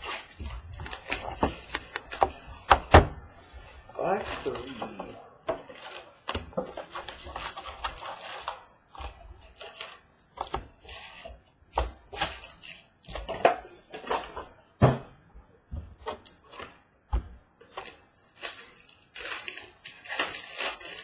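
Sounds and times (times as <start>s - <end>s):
wrapper crinkling: 0.0s - 2.7s, 3.4s - 11.3s, 17.6s - 21.0s.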